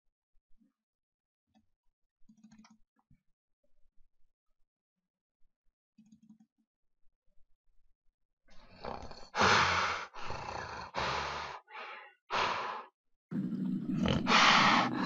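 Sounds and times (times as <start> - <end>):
person roaring like a monster: 8.8 - 15.0.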